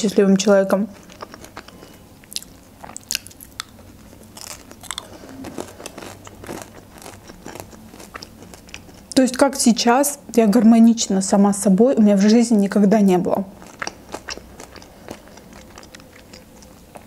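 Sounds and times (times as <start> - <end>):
person chewing crispy food: 0.9 - 9.2, 13.5 - 17.0.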